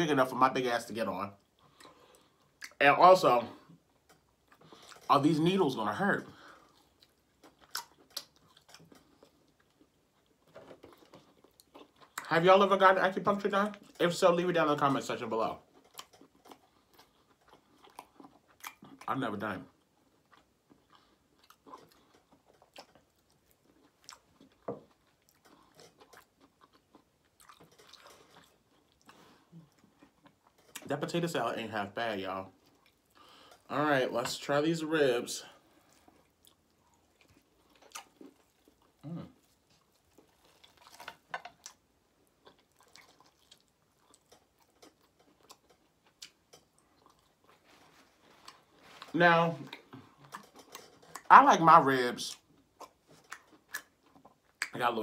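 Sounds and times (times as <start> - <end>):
person chewing: 6.4 - 12.3, 15.6 - 19.1, 19.7 - 30.9, 32.5 - 33.7, 35.4 - 51.3, 52.3 - 54.8
person eating with wet smacks: 6.7 - 12.3, 20.1 - 30.9, 35.8 - 51.3, 52.3 - 54.8.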